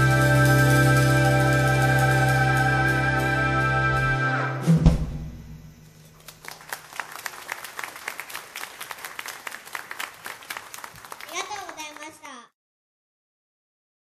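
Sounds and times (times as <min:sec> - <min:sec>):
synthesizer held chord: 0:00.0 - 0:04.6
loud drum hit: 0:04.6 - 0:05.8
audience applauding: 0:06.2 - 0:12.4.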